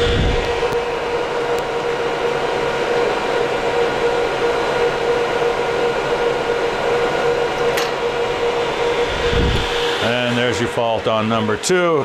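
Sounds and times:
cooling fans whirring: 0:00.0 - 0:12.0.

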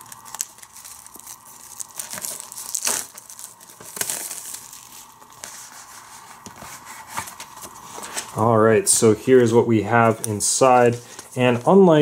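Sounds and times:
plastic shrink wrap tearing: 0:00.0 - 0:05.5.

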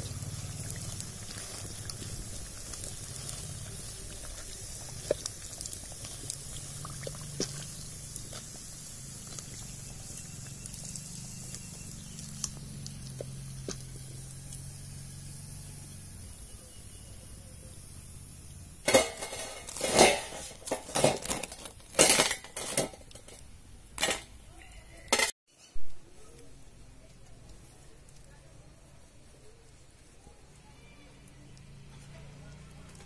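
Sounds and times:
hot oil sizzling: 0:00.0 - 0:24.3.

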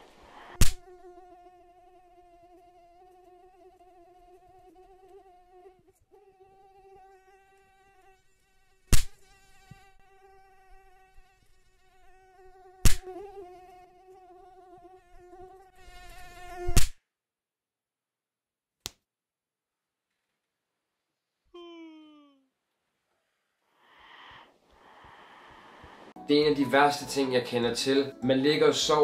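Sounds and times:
mosquito buzzing: 0:00.4 - 0:17.0, 0:23.8 - 0:26.2.

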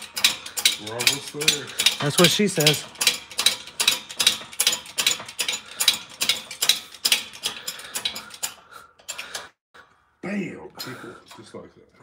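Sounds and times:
hand drill ratcheting through steel: 0:00.0 - 0:09.6.

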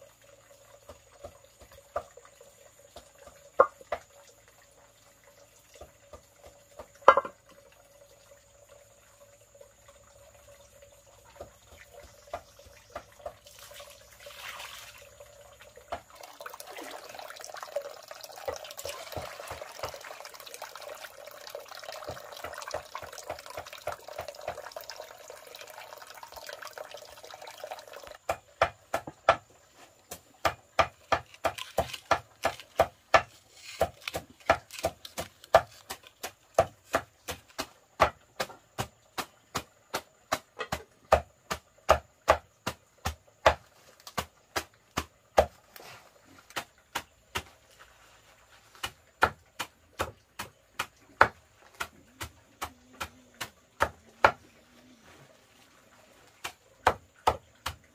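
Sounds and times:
water running: 0:00.0 - 0:28.4.

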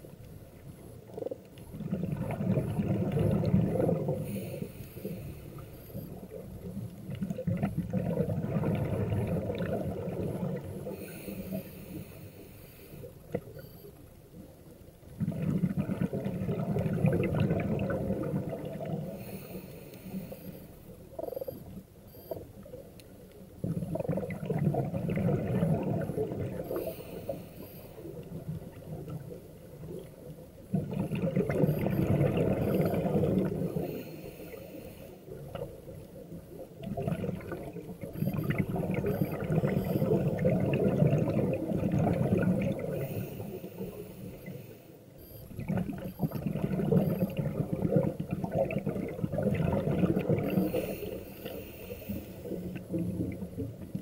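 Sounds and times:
exhaled bubbles rumbling: 0:00.0 - 0:04.7, 0:06.1 - 0:11.2, 0:15.0 - 0:19.4, 0:23.5 - 0:27.0, 0:28.0 - 0:34.0, 0:35.3 - 0:44.5, 0:45.3 - 0:51.2, 0:52.1 - 0:54.0
quiet underwater gurgling: 0:00.0 - 0:54.0.

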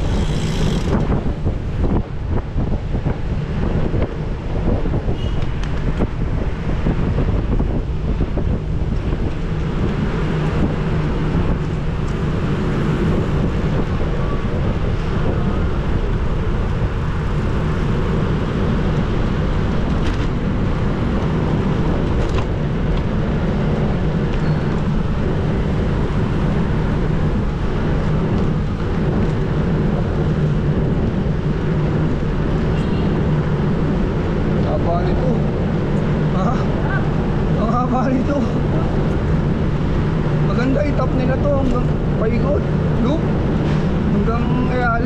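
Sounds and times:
wind rushing over microphone: 0:00.0 - 0:45.0.

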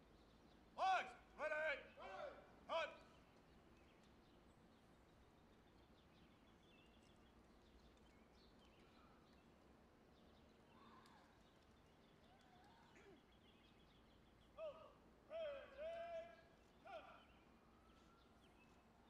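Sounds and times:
faint bird chirps: 0:03.0 - 0:09.5.

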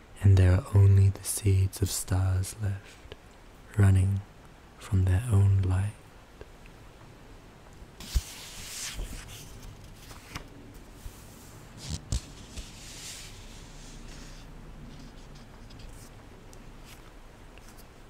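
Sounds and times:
soft knocks handling book: 0:08.0 - 0:11.2, 0:11.8 - 0:13.4
book pages turning: 0:08.0 - 0:16.2, 0:16.8 - 0:17.9.

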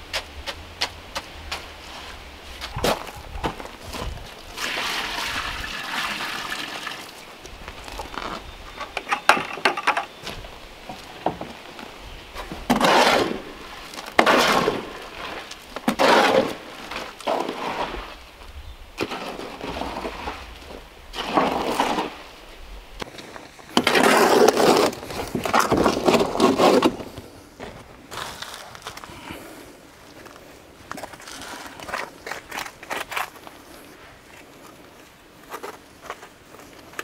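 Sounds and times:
hoe scraping wet cement: 0:00.0 - 0:07.3, 0:12.3 - 0:27.4.

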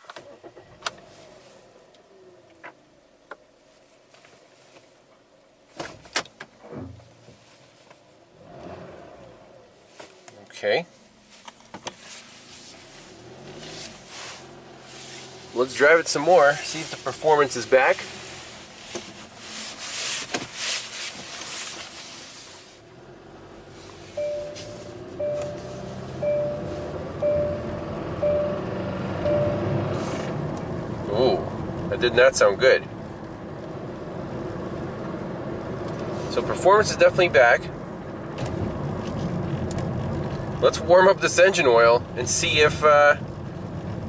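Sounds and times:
car engine idling: 0:09.5 - 0:44.0
dashboard warning chime: 0:24.1 - 0:30.0.

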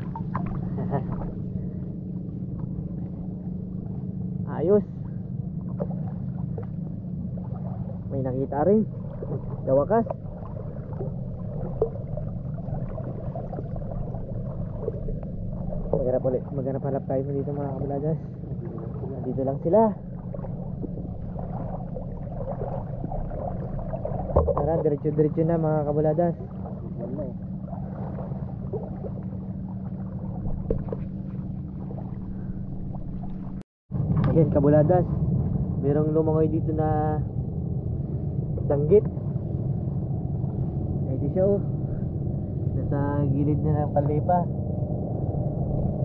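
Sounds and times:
water rushing: 0:00.0 - 0:01.7, 0:05.6 - 0:35.1
faint bubbling: 0:00.0 - 0:33.6
muffled rumble of seawater: 0:00.0 - 0:46.0.

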